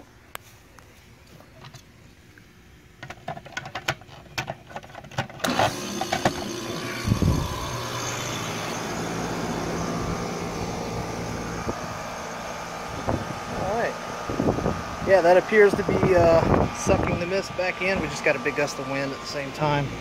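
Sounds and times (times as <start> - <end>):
air conditioner compressor humming: 0.0 - 20.0
condenser fan blowing: 4.4 - 20.0.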